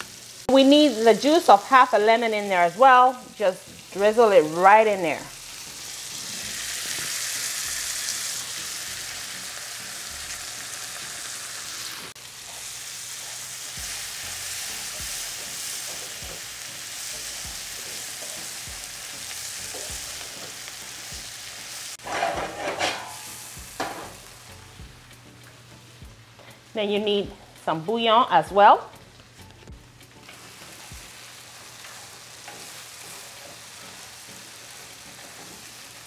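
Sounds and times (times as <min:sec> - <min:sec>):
onions sizzling in oil: 0:00.0 - 0:36.0
wooden spatula scraping and knocking: 0:22.0 - 0:23.1
spatula clatter: 0:22.0 - 0:24.2.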